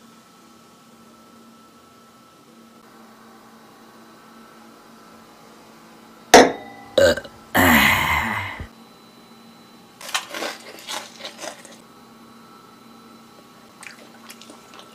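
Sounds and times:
person burping loudly: 6.4s - 8.7s
person grunting: 7.0s - 8.7s.

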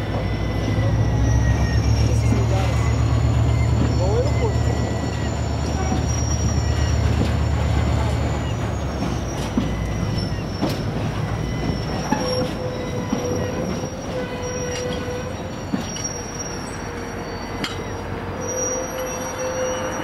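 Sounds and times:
low rumble of wagons: 0.0s - 20.0s
train wheels squealing: 0.0s - 20.0s
wheels clicking over rail joints: 2.2s - 16.4s.

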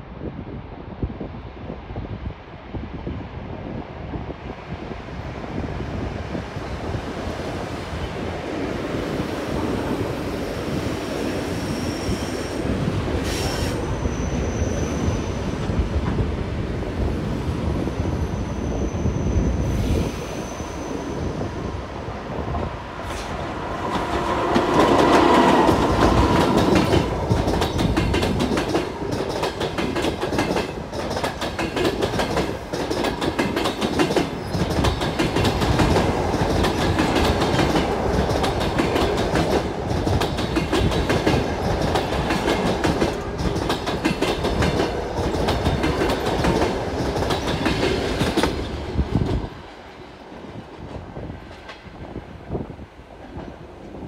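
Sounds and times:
diesel locomotive passing: 4.4s - 54.0s
train wheels clacking over rail joints: 23.1s - 49.5s.

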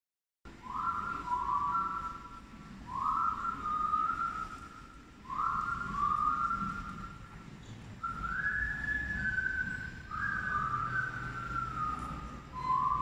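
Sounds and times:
whistled melody: 0.6s - 13.0s.

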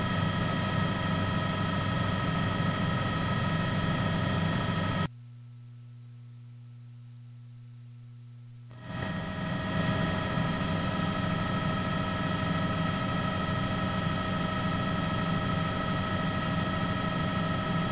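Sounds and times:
engine drone: 0.0s - 5.1s, 8.7s - 17.9s.

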